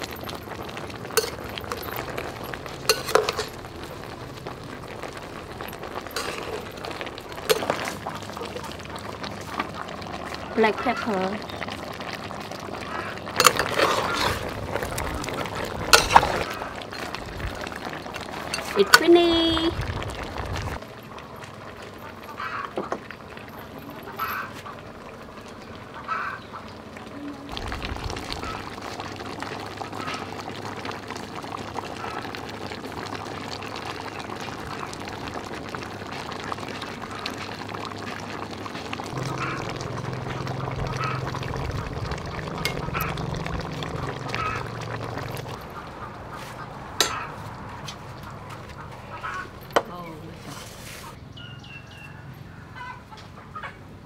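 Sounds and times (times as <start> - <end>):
farmyard fowl calling: 12.8 - 13.3, 22.3 - 22.8, 24.1 - 24.8, 25.9 - 26.8, 39.2 - 43.3, 44.0 - 44.8, 45.7 - 49.6, 50.8 - 53.9
low steady hum: 39.1 - 47.0.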